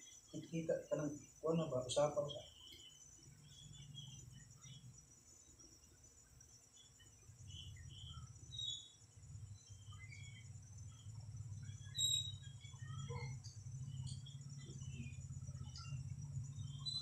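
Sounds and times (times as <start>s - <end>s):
crickets and insects chirping: 0.0s - 17.0s
low hum: 7.1s - 17.0s
loud high chirps: 11.8s - 16.0s.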